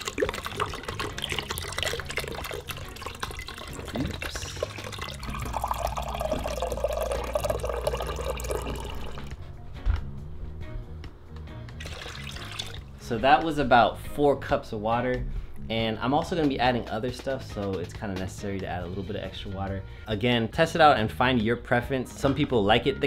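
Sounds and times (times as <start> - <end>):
water filling a glass cup: 0.0 - 9.3, 11.8 - 12.9
water pouring into pot: 0.0 - 9.3, 11.8 - 12.9.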